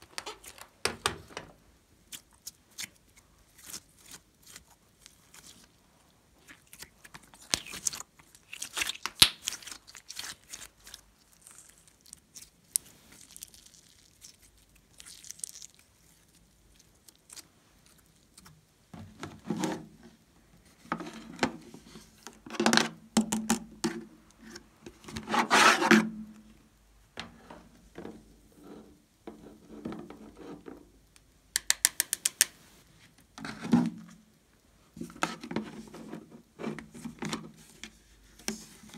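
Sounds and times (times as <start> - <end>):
rubbing and handling slime: 0.0 - 0.8, 1.5 - 31.1, 32.3 - 38.9
slime squishing: 2.1 - 18.6.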